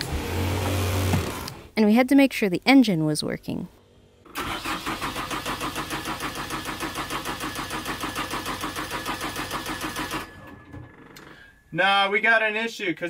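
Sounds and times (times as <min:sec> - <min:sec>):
diesel engine running: 0:04.1 - 0:10.6.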